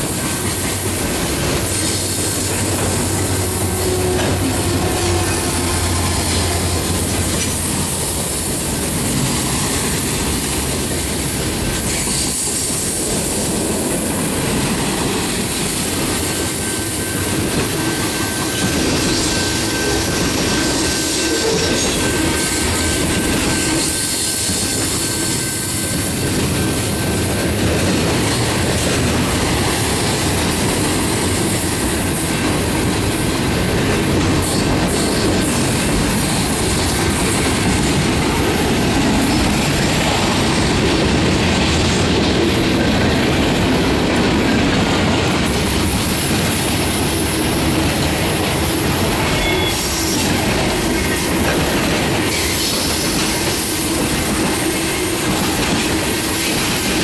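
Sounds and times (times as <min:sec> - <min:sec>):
locomotive engine drone: 0:00.0 - 0:12.1
train wheels clattering on rails: 0:00.0 - 0:57.0.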